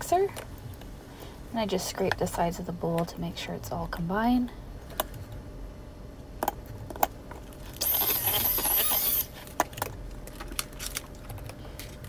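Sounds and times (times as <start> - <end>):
electric hand mixer whirring: 7.8 - 9.3.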